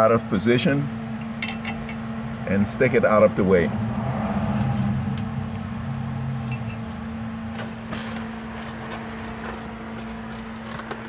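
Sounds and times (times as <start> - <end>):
low machine hum: 0.0 - 11.0
lower second hum: 0.6 - 9.4.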